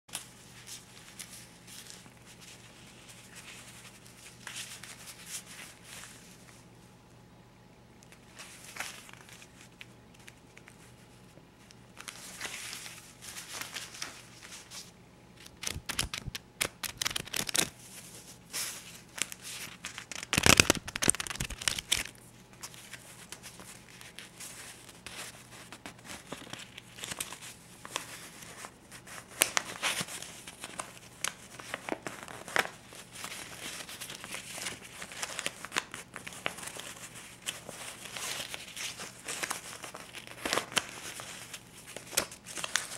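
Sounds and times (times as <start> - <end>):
banknotes rustling: 12.0 - 42.9.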